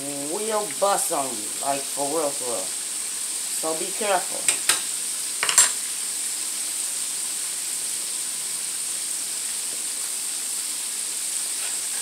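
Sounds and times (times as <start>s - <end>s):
food deep-frying in oil: 0.0s - 12.0s.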